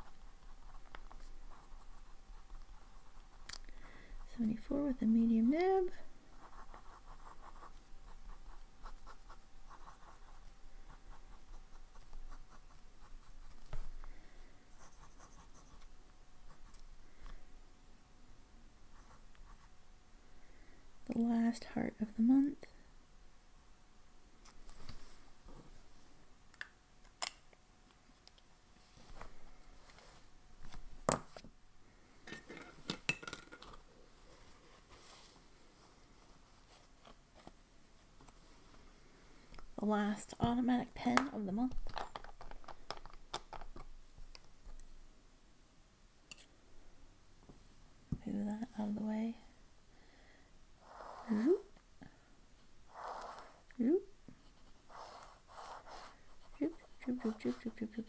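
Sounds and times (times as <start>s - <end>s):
fountain pen scratching on paper: 0.0s - 3.5s, 6.3s - 13.6s, 14.8s - 15.9s.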